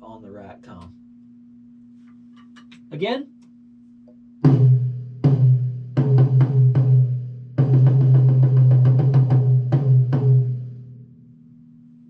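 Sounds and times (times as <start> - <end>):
rack tom drum hits: 4.4 - 10.8.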